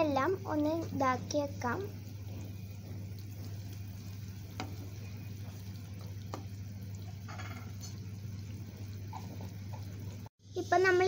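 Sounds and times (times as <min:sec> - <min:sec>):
steady low hum: 0:00.0 - 0:10.3
spatula stirring curry in pot: 0:02.1 - 0:08.1.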